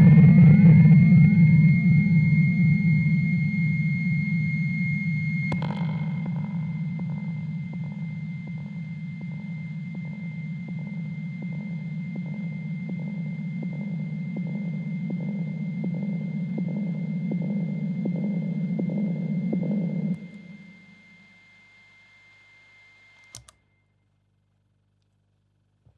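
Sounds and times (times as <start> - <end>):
low droning hum: 0.0 - 21.6
regular ticking pulse: 5.5 - 21.1.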